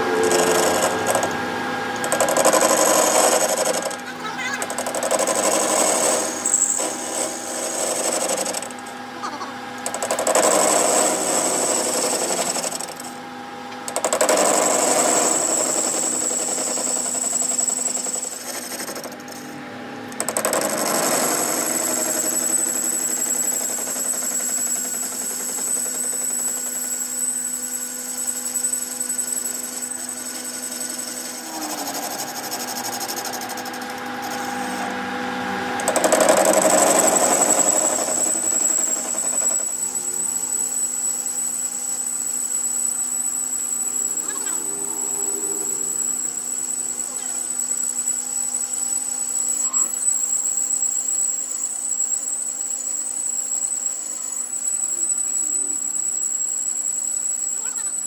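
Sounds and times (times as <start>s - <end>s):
cutting tool whine on metal: 0.0s - 58.0s
lathe running: 0.0s - 58.0s.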